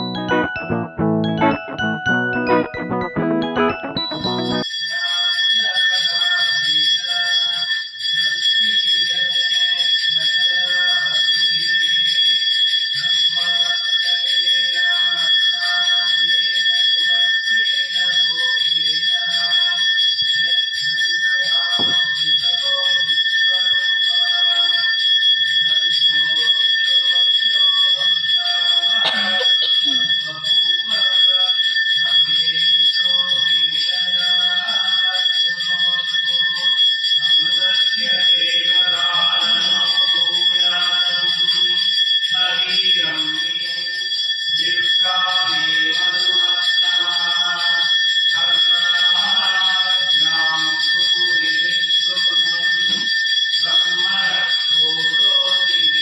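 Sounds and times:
bell ringing steadily: 0:00.0 - 0:56.0
men chanting: 0:29.0 - 0:30.0.

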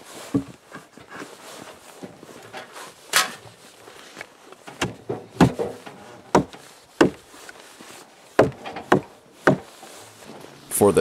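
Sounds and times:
sledgehammer knocking on wood: 0:04.8 - 0:07.2, 0:08.4 - 0:09.7.

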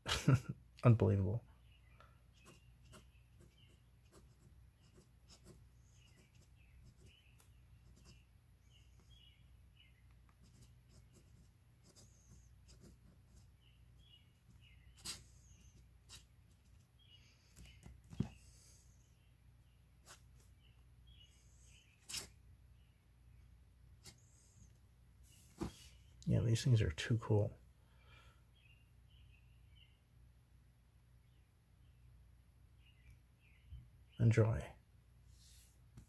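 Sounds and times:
pen nib scratching paper: 0:02.3 - 0:08.2, 0:10.4 - 0:13.6, 0:14.5 - 0:16.8.

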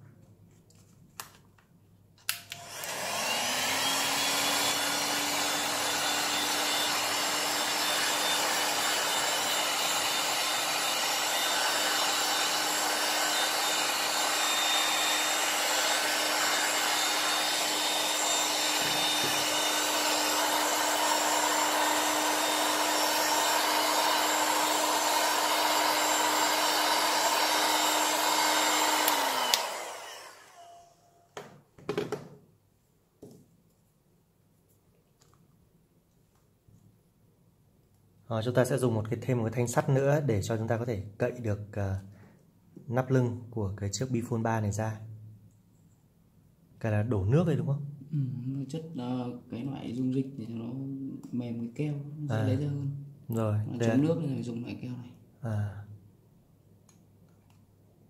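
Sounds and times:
hot air gun blowing: 0:02.5 - 0:30.9.

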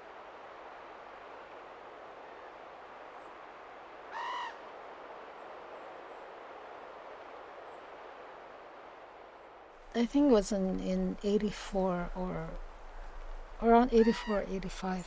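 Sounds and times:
outdoor background hiss: 0:00.0 - 0:15.0
bird call: 0:04.1 - 0:04.6.

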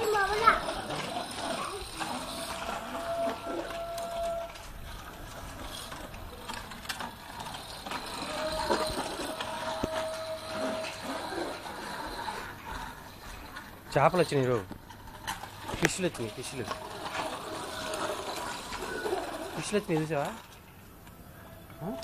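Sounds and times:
bicycle rattling over concrete: 0:00.0 - 0:22.0
long steady tone: 0:00.9 - 0:12.8.

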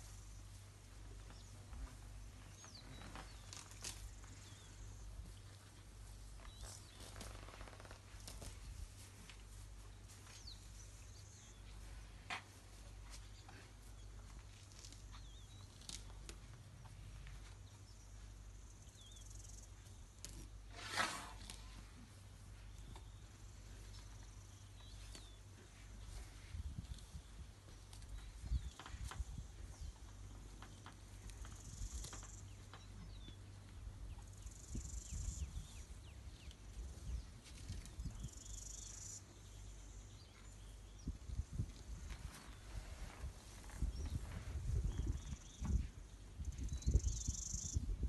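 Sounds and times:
elephants chewing grass: 0:00.0 - 0:17.8, 0:20.2 - 0:29.3
low steady rumble: 0:00.0 - 0:48.0
elephant tearing grass: 0:20.7 - 0:21.9
faint bird chirps: 0:34.1 - 0:41.6, 0:43.6 - 0:48.0.

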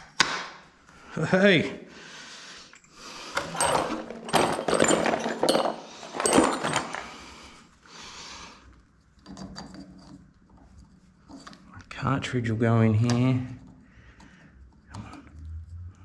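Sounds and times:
tools clicking and knocking: 0:03.4 - 0:07.1.

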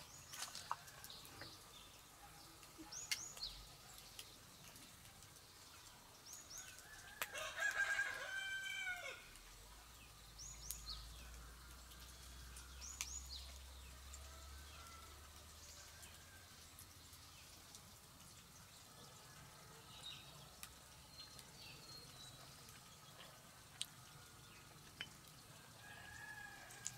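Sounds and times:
rooster crowing: 0:06.7 - 0:09.3, 0:14.2 - 0:16.4, 0:25.7 - 0:26.9.

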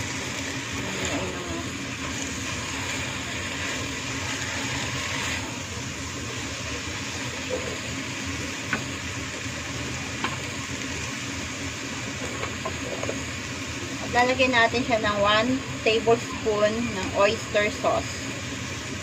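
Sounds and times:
food sizzling in a pot: 0:00.0 - 0:19.0
steady low hum: 0:00.0 - 0:19.0.

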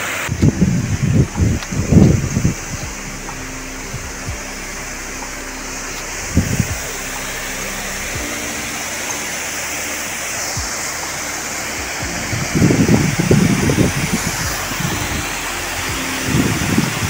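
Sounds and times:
wind rushing over microphone: 0:00.0 - 0:17.0
wind gusts buffeting microphone: 0:00.3 - 0:04.5, 0:06.1 - 0:07.1, 0:10.6 - 0:17.0.

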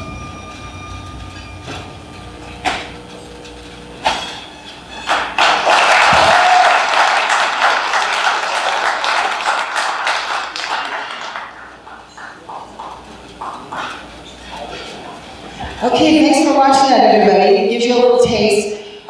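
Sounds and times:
heavy soundtrack hits: 0:00.0 - 0:03.2
crowd applauding: 0:05.0 - 0:14.2.

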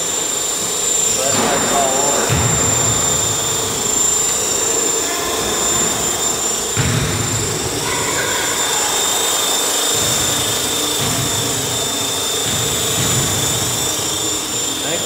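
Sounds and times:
motor whine: 0:00.0 - 0:15.0
rotor blades buzzing: 0:00.0 - 0:15.0.

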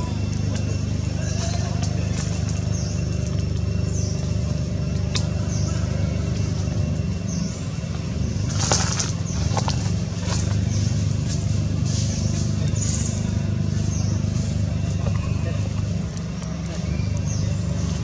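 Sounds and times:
vehicle engine hum: 0:00.0 - 0:18.0.

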